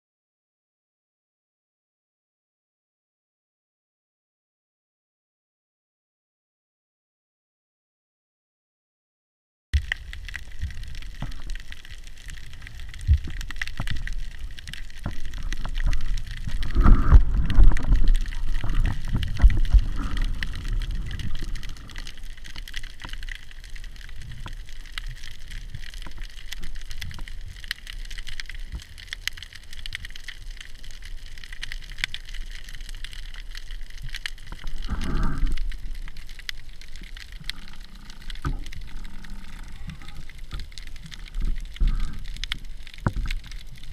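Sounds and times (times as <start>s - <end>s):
muffled water rumbles: 9.8s - 43.9s
underwater crackling clicks: 9.8s - 43.9s.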